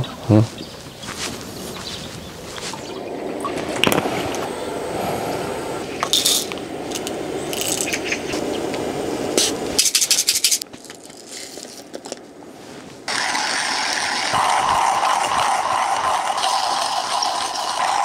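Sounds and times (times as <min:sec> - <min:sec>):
coffee grinder grinding: 0:13.1 - 0:18.0.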